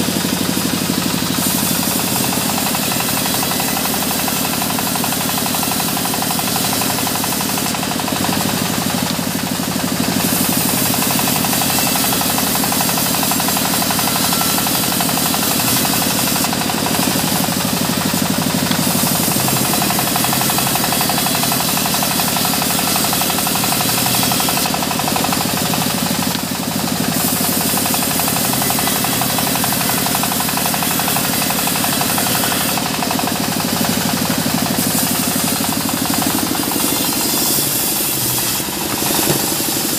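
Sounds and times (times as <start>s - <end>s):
band saw sawing through log: 0.0s - 39.9s.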